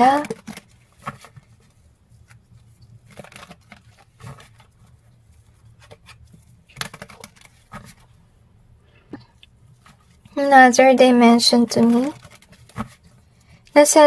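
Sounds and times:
cards being shuffled: 0.0s - 5.0s, 5.7s - 8.1s, 11.5s - 13.7s.

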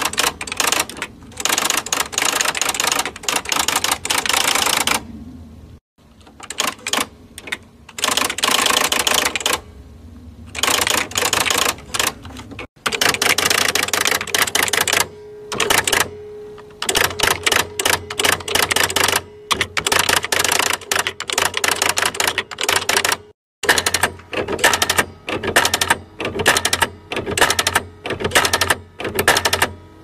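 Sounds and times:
electric typewriter keystrokes: 0.0s - 5.0s, 6.2s - 9.6s, 10.5s - 16.1s, 16.8s - 29.8s
steady low hum: 0.0s - 12.7s, 13.3s - 22.6s.

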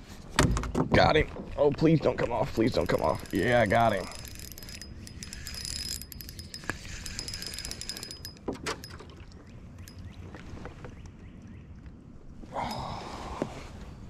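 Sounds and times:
fishing reel ticking: 2.5s - 8.9s
thin steady whine: 2.7s - 9.0s.

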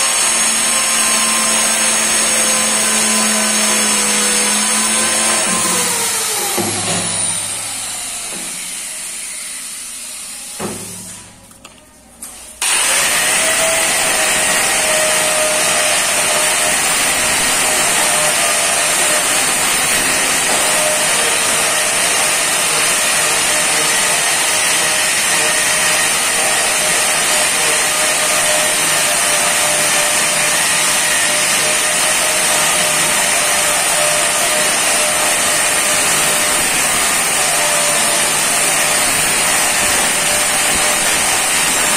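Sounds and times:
angle grinder grinding stone: 12.6s - 41.9s
angle grinder winding down: 12.6s - 41.9s.

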